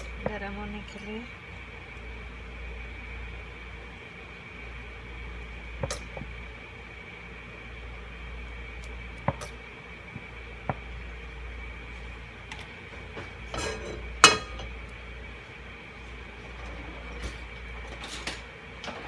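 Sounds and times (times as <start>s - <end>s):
kitchenware clicks and knocks: 13.6s - 14.7s.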